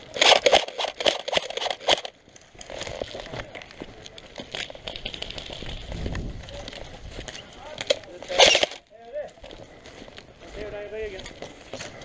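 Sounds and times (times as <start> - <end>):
gear clicks: 0.0 - 3.1, 4.0 - 8.8
rustling through long grass: 4.2 - 7.4
loud sharp sounds: 7.9 - 8.8.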